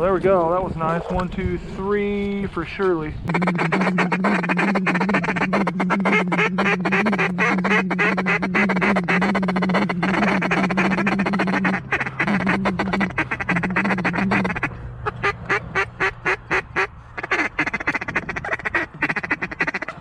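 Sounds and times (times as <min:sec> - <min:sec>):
low steady drone: 0:00.0 - 0:15.0
mallard quacking: 0:03.3 - 0:20.0.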